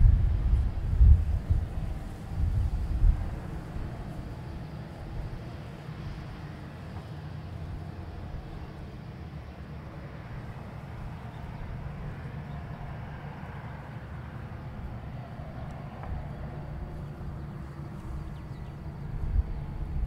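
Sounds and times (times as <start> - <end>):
engine hiss: 0.0 - 20.0
jet engines idling: 0.0 - 20.0.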